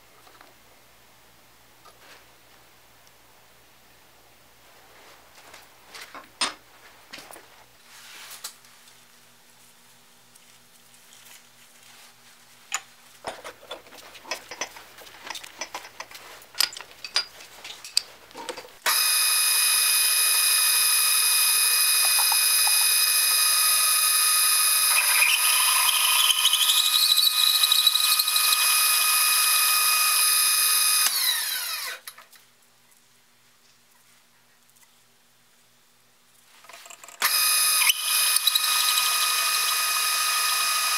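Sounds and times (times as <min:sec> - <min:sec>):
metal clicks and clinks: 0:14.3 - 0:18.7
drill press spindle whine: 0:18.9 - 0:32.1, 0:37.2 - 0:40.9
reamer squealing in steel: 0:24.6 - 0:28.7, 0:37.8 - 0:40.0.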